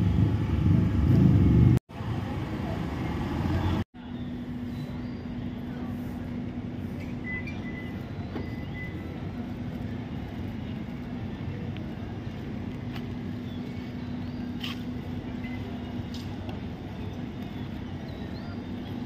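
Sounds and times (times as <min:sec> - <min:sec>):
noisy outdoor background: 0:00.0 - 0:19.0
steady mechanical hum: 0:04.0 - 0:19.0.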